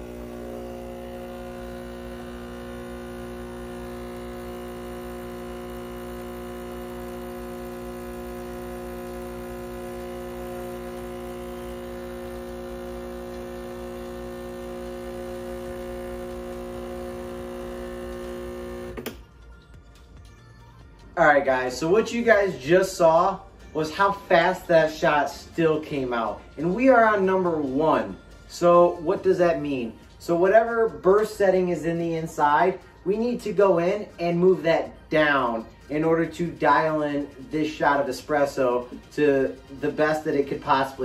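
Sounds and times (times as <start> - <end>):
espresso machine pump humming: 0.0 - 19.2.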